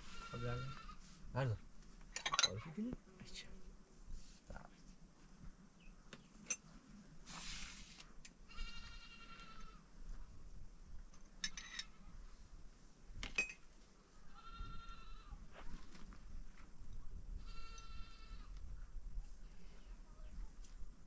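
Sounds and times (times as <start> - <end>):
livestock bleating: 0.0 - 1.0, 8.5 - 9.8, 14.3 - 15.4, 17.4 - 18.6
short hiss: 7.2 - 8.1.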